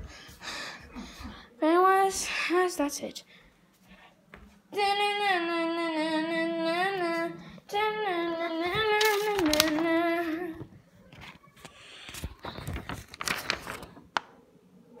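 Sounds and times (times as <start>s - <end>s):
person singing wordless tune: 4.7s - 10.6s
paper rustling: 8.7s - 14.3s.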